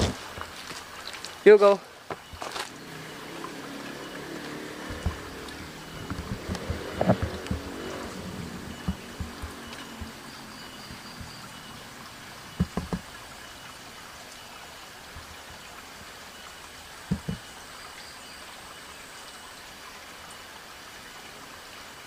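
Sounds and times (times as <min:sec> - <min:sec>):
steady outdoor hiss: 0:00.0 - 0:22.0
faint steady high tones: 0:01.5 - 0:14.6
short low thumps: 0:04.8 - 0:10.2, 0:17.1 - 0:17.4.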